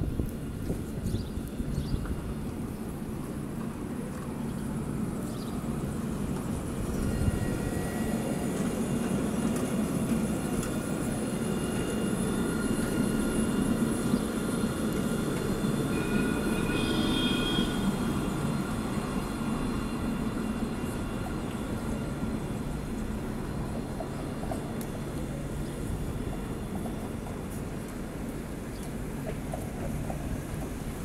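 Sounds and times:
steel wheels rumbling on rails: 0.0s - 31.0s.

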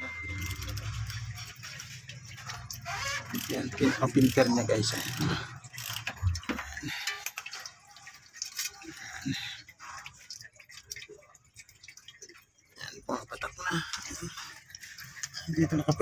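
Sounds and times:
fuel trickling and dripping into pan: 0.0s - 16.0s.

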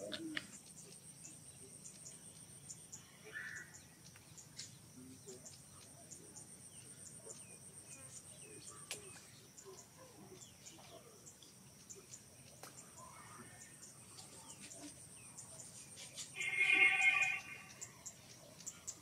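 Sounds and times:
monkey call: 13.3s - 19.0s
high insect drone: 14.7s - 19.0s.

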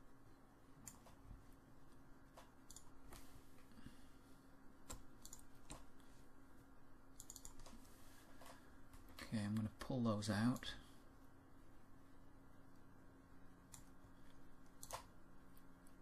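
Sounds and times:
faint steady hum: 0.0s - 16.0s
computer mouse clicking: 0.8s - 1.2s, 2.3s - 3.3s, 4.8s - 6.0s, 7.1s - 9.9s, 13.7s - 16.0s.

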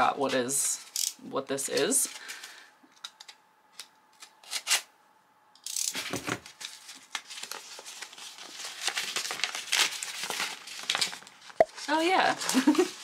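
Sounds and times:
paper wrap clicks: 6.5s - 12.9s.

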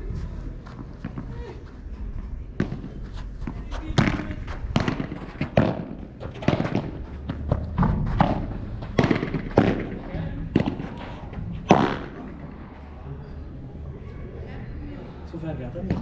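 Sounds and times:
ball bouncing on court and walls: 0.7s - 1.6s, 2.5s - 13.0s, 15.8s - 16.0s
padel ball hitting rackets: 2.6s - 12.6s.

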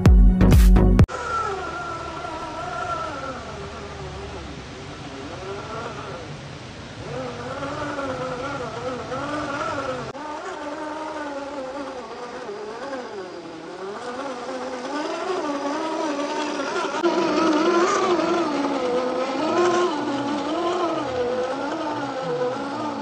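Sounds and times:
electric motor and gearbox whining: 7.1s - 23.0s.

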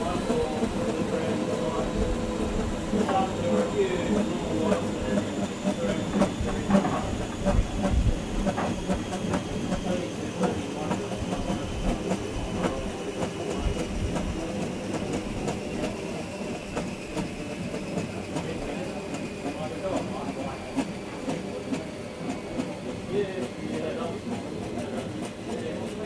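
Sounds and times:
train rumbling on track: 0.0s - 26.0s.

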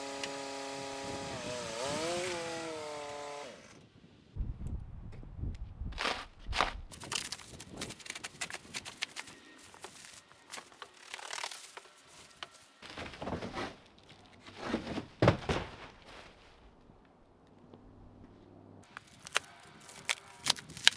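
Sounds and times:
plastic wrap tearing and crinkling: 7.0s - 12.0s, 19.0s - 20.9s
cardboard rustling: 7.0s - 16.6s
cardboard box thump: 14.7s - 15.9s.

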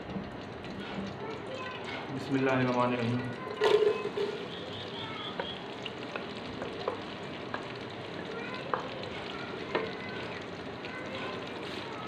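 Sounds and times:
onions sizzling in hot fat: 0.0s - 12.0s
wooden spoon knocking a pot: 5.3s - 7.7s.

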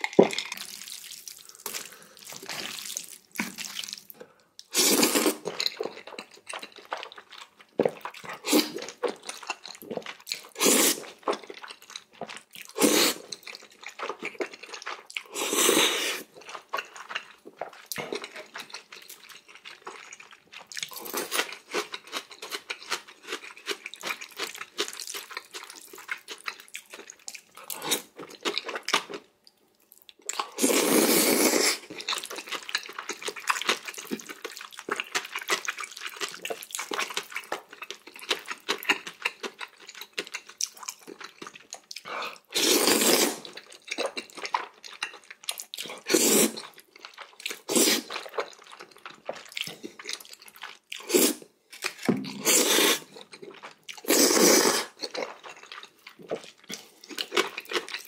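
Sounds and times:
chewing: 0.0s - 58.0s
wet noodle slurps: 4.7s - 5.7s, 10.5s - 11.2s, 12.7s - 13.4s, 15.2s - 16.3s, 30.5s - 32.0s, 42.1s - 43.6s, 45.9s - 46.8s, 47.6s - 48.6s, 51.0s - 55.4s.

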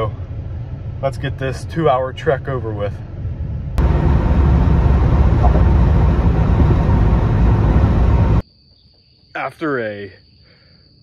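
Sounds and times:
road and wind noise in cab: 0.0s - 8.5s.

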